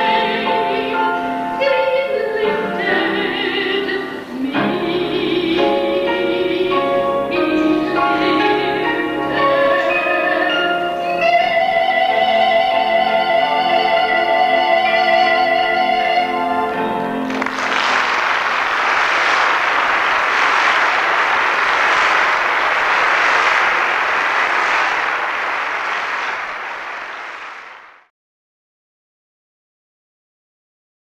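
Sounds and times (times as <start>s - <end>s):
audience applauding: 17.3s - 28.1s.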